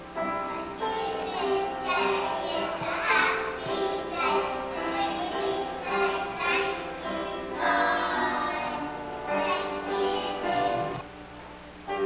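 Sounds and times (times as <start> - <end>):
children singing: 0.4 - 11.0.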